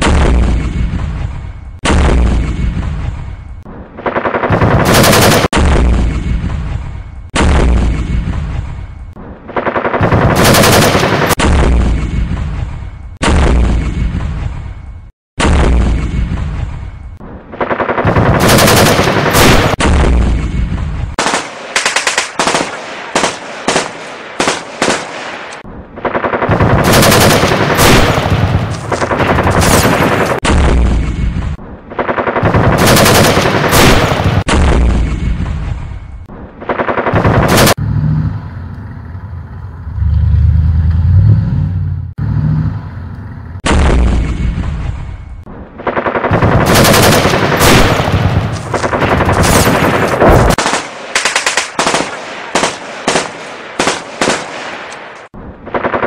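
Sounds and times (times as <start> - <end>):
single gunshots: 0.0 - 3.3, 4.5 - 8.8, 10.0 - 14.8, 15.4 - 16.8, 18.1 - 25.6, 26.5 - 31.6, 32.4 - 35.9, 43.6 - 45.1, 46.2 - 55.4
low rumbling booms: 0.0 - 3.7, 5.6 - 9.4, 11.4 - 17.3, 34.2 - 36.6, 43.5 - 45.6
machine-gun fire: 3.9 - 6.7, 9.3 - 14.5, 17.5 - 35.4, 36.5 - 37.8, 45.8 - 56.0.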